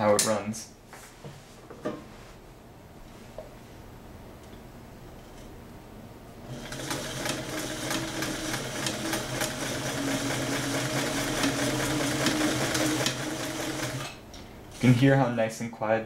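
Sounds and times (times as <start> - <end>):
sewing machine stitching: 6.5 - 14.2.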